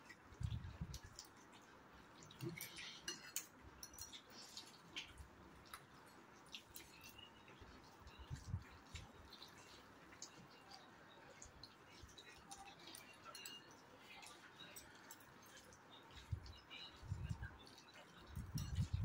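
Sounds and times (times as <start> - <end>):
forks clicking against bowls: 2.2 - 7.3, 11.4 - 19.0.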